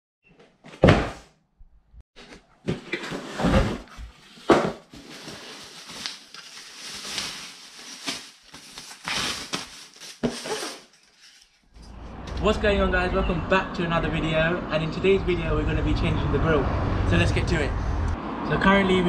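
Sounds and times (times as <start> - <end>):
bubble wrap crinkling: 4.2 - 11.7.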